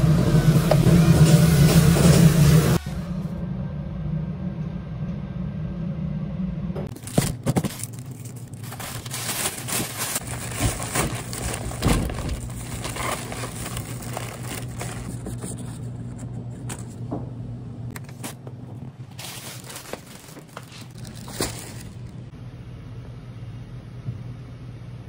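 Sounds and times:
steady low hum: 0.0s - 25.0s
plastic bag rustling: 6.9s - 16.9s, 19.0s - 22.3s.

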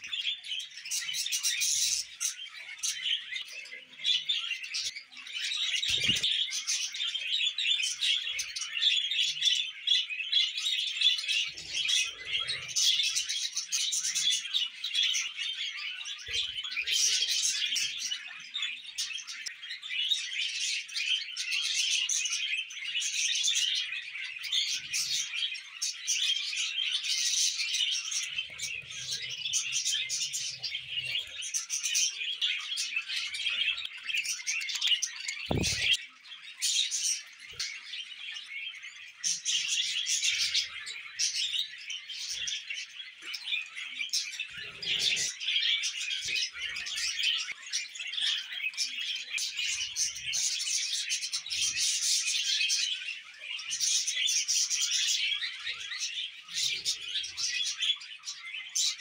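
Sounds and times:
budgerigars chattering: 26.9s - 36.5s
soft knock: 35.5s - 36.0s.

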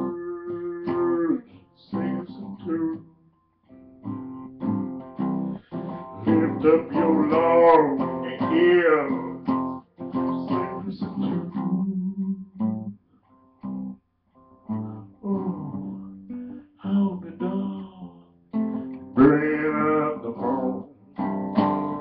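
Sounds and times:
man singing: 0.0s - 3.1s, 5.6s - 12.7s, 14.7s - 21.1s
acoustic guitar strumming: 0.0s - 22.0s.

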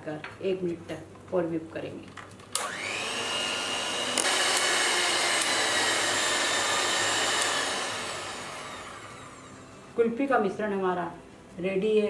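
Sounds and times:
electric hand mixer whining: 2.6s - 10.0s.

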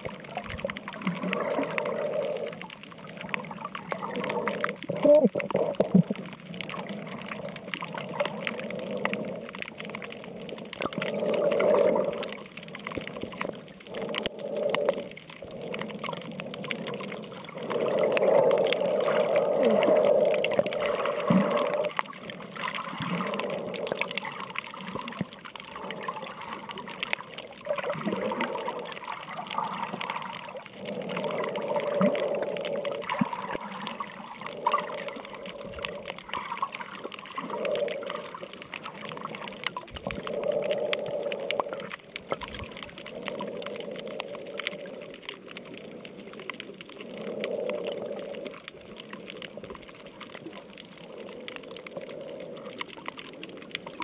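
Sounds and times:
water sloshing underwater: 0.0s - 54.0s.

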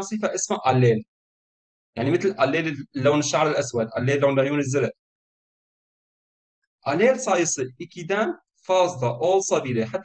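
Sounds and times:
person speaking: 2.0s - 4.6s, 6.9s - 10.0s.

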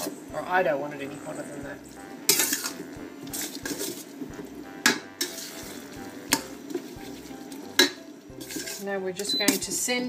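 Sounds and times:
metal spatula scraping a wok: 2.2s - 9.0s.

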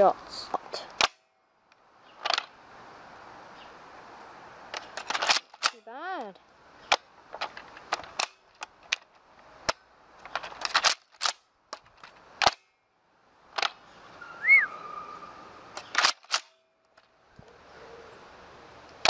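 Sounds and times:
rising and falling chirp: 13.9s - 15.6s
toy blaster clicks and snaps: 15.8s - 16.5s.

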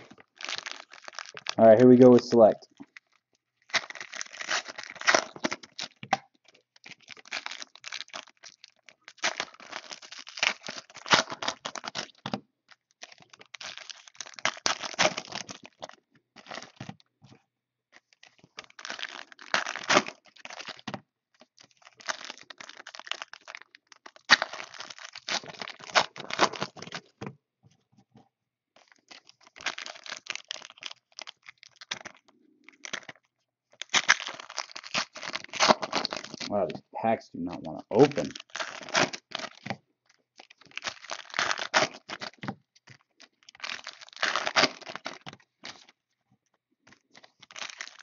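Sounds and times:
card pack wrappers crinkling: 0.0s - 17.0s, 18.0s - 27.3s, 28.8s - 46.0s, 46.9s - 48.0s.

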